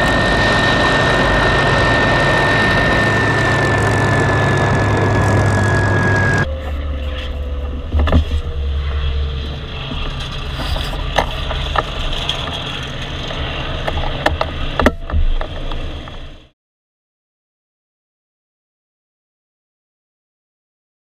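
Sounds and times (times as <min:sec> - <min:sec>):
aircraft engine rumbling: 0:00.0 - 0:16.5.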